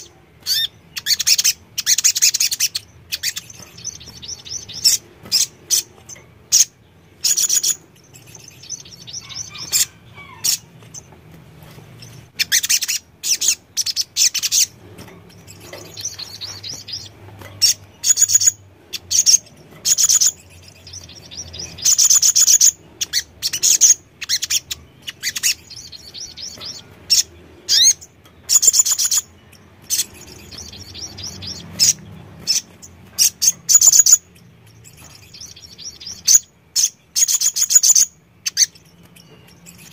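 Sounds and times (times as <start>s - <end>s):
bird chirping trills: 0.0s - 39.9s.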